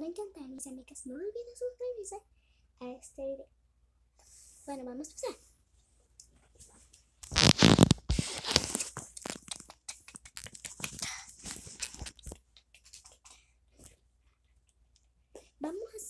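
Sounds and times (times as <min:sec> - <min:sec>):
handling noise on microphone: 0:06.4 - 0:09.5, 0:10.3 - 0:12.4.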